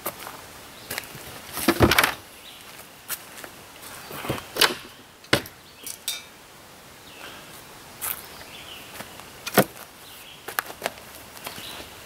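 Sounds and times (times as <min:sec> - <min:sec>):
sharp knocks and clinks: 0:05.4 - 0:06.3.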